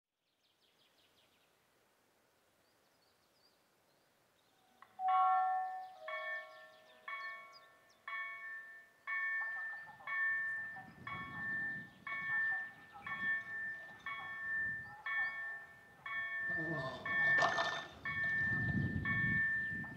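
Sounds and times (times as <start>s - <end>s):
level crossing warning bell: 4.8s - 19.9s.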